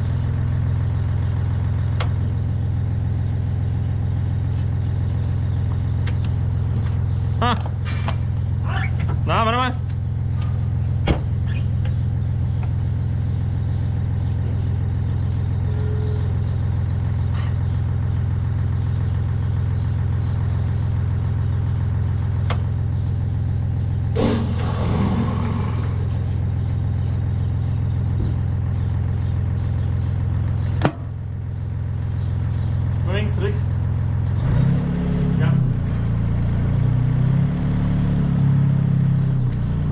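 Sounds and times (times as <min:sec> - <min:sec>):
wheel loader engine running: 0:00.0 - 0:37.2.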